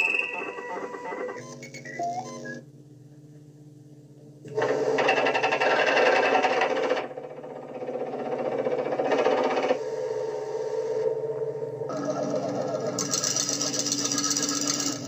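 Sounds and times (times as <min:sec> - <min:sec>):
electronic beeps and tones: 0:00.0 - 0:02.6
low steady hum: 0:00.0 - 0:15.0
rapid mechanical clattering: 0:04.5 - 0:09.8, 0:11.9 - 0:15.0.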